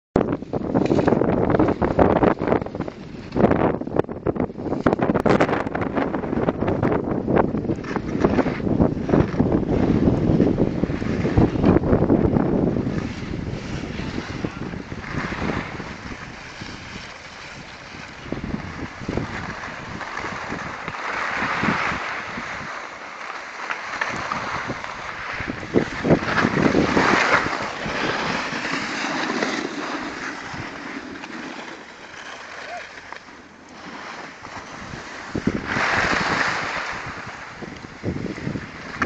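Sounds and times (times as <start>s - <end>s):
wind on microphone: 0.2s - 23.0s, 23.9s - 31.3s, 33.8s - 39.0s
skis scraping over packed snow: 0.2s - 39.0s.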